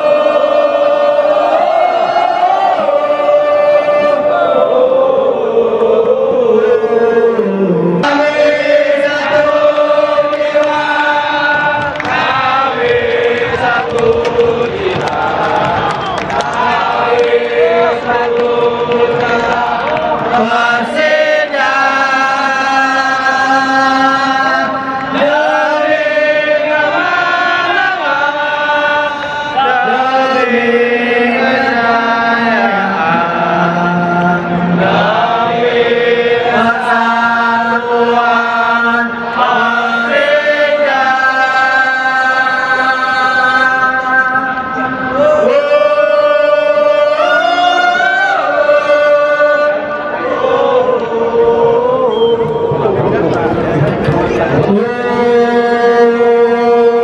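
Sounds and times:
crowd singing a chant: 0:00.0 - 0:57.0.

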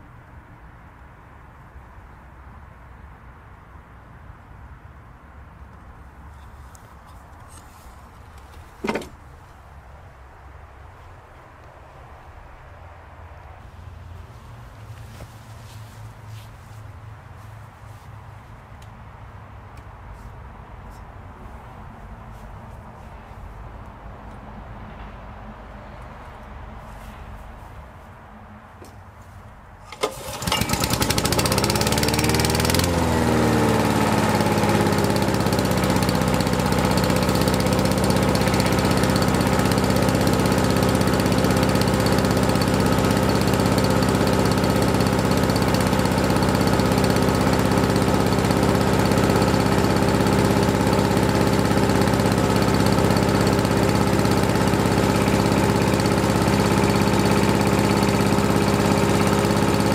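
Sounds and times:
lawn mower engine starting and running: 0:06.3 - 0:09.7, 0:13.6 - 0:16.8, 0:29.8 - 0:59.9.

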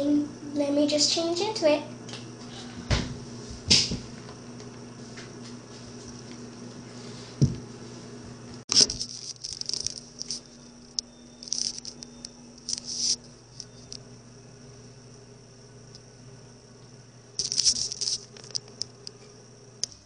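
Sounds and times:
faint steady hum: 0:00.0 - 0:20.0
scratchy handling rustling: 0:08.7 - 0:10.5, 0:12.6 - 0:13.7, 0:17.4 - 0:18.6.

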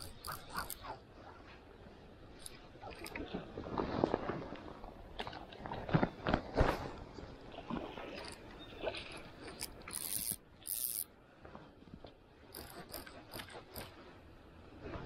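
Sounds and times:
fly reel drag ratcheting: 0:00.0 - 0:00.8, 0:09.5 - 0:11.1, 0:12.5 - 0:14.0.

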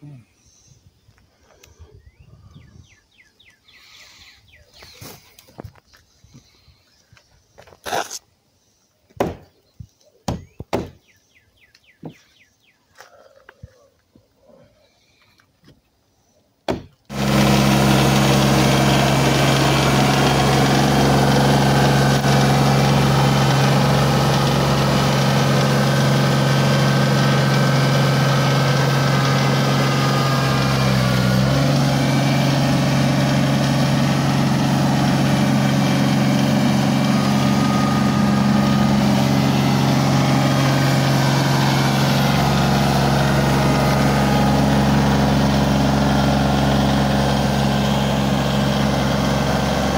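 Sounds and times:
tractor engine running: 0:16.8 - 0:49.9.

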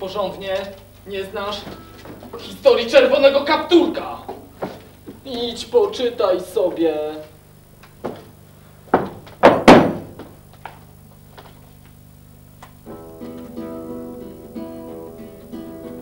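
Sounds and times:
thumps and knocks: 0:08.9 - 0:10.4
acoustic guitar plucked tune: 0:12.8 - 0:16.0.

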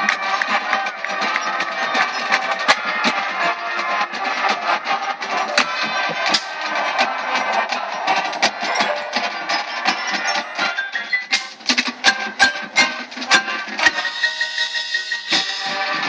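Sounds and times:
marching band playing: 0:00.0 - 0:16.0.

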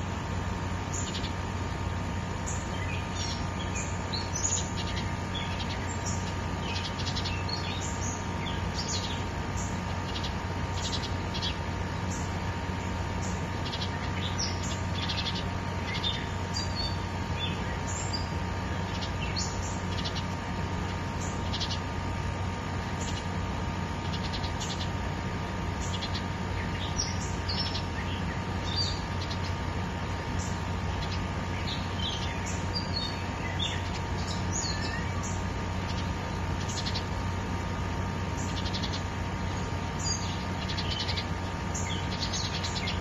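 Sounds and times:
small birds chirping: 0:00.0 - 0:43.0.

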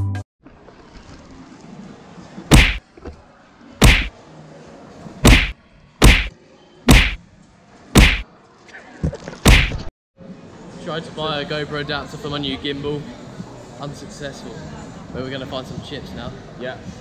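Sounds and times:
sharp whacks: 0:02.5 - 0:02.8, 0:03.8 - 0:04.1, 0:05.2 - 0:06.3, 0:06.9 - 0:07.2, 0:08.0 - 0:08.2, 0:09.4 - 0:09.9.

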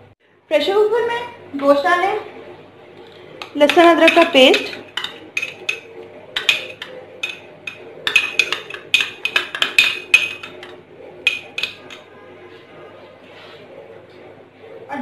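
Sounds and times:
spoon clinking against metal pot: 0:03.4 - 0:12.1.

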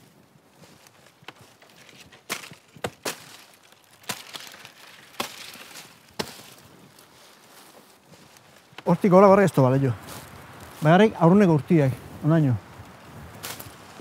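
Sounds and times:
blade chopping wood stems: 0:01.0 - 0:06.7.

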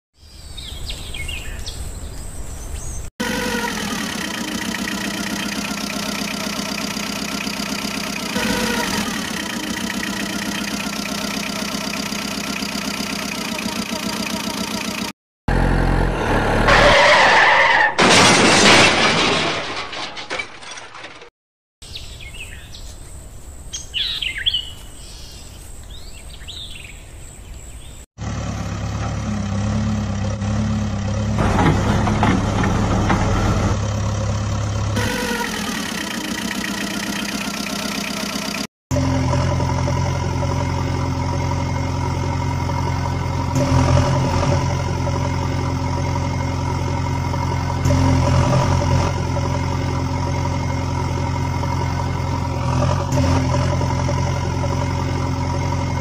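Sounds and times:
birds chirping: 0:00.2 - 0:03.1, 0:21.8 - 0:28.1
truck engine running: 0:00.6 - 0:17.5, 0:28.2 - 0:56.0
engine idling: 0:03.2 - 0:16.1, 0:28.2 - 0:56.0.

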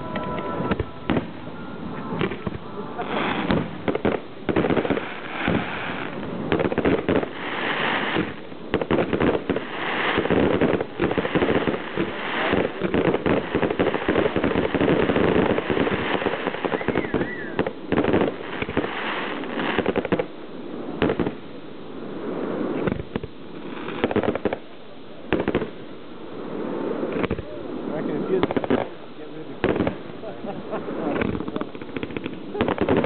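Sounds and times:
firework crackling: 0:00.0 - 0:33.0
firework shells bursting: 0:08.0 - 0:20.3, 0:29.6 - 0:33.0.

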